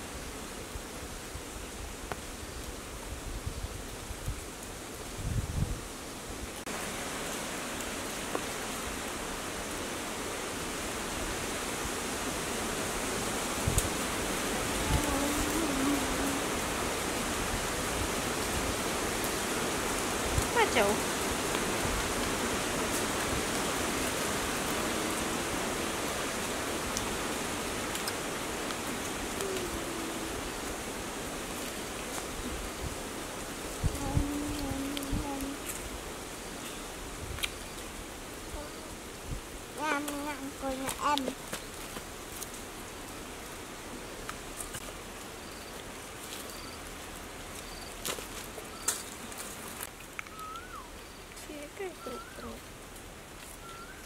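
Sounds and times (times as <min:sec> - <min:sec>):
steady hiss: 0:00.0 - 0:54.0
sharp rustling crackles: 0:39.8 - 0:54.0
short wavering call: 0:50.3 - 0:50.9, 0:53.6 - 0:54.0
faint high chirp: 0:50.3 - 0:51.3, 0:52.0 - 0:52.6, 0:53.6 - 0:54.0.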